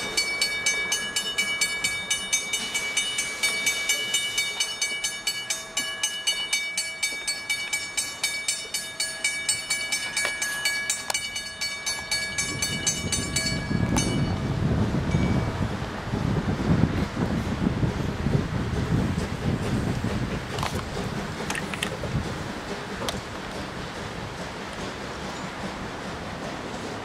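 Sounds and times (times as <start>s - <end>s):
train wheels clicking: 0.0s - 14.4s, 16.9s - 27.0s
wind on microphone: 12.3s - 23.3s.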